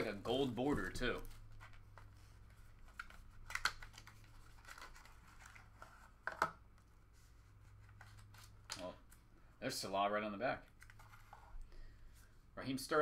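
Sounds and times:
cardboard and paper rustling: 0:00.3 - 0:06.2.

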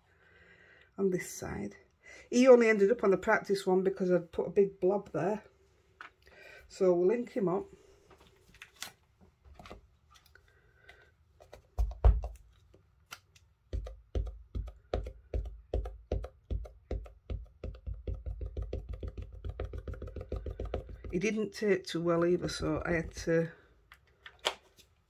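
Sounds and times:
ink pad tapping on stamp: 0:13.7 - 0:21.3.

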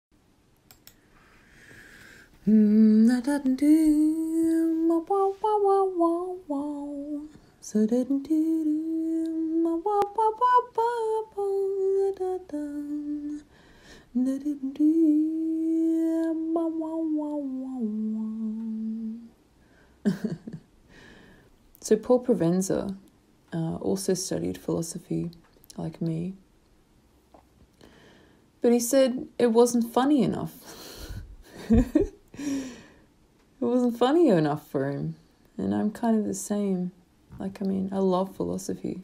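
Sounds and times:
woman singing wordless melody: 0:02.4 - 0:19.4, 0:21.8 - 0:26.4, 0:33.6 - 0:39.0.

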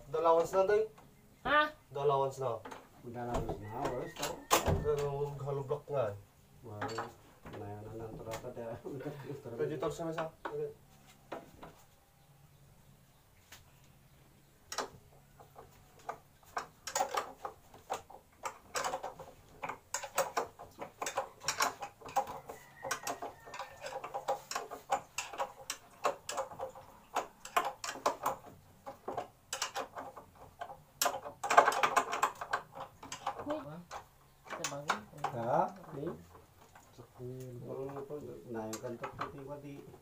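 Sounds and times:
tools knocking on wooden cabinet: 0:02.7 - 0:05.1.

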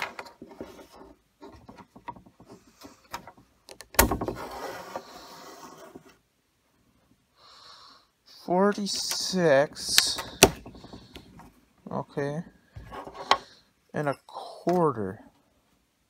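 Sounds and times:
tape blade rattling on wood: 0:08.8 - 0:11.5.

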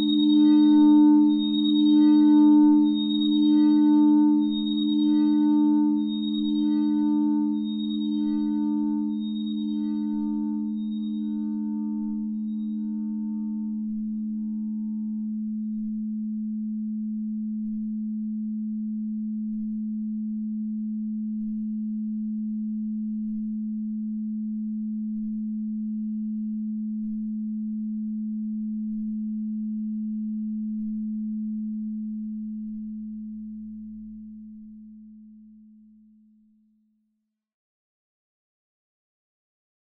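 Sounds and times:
audio feedback drone: 0:00.0 - 0:15.8.

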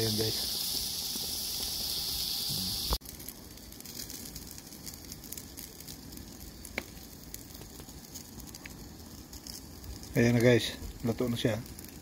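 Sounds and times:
chicken sizzling on a grill: 0:00.0 - 0:12.0
crackling hiss with faint ticks: 0:00.0 - 0:12.0.

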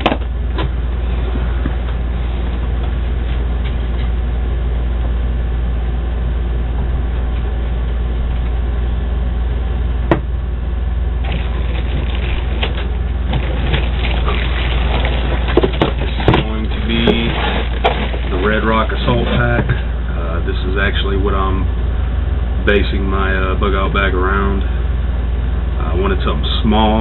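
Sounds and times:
steady low hum: 0:00.0 - 0:27.0
plastic wrapping crinkling: 0:11.2 - 0:19.4.

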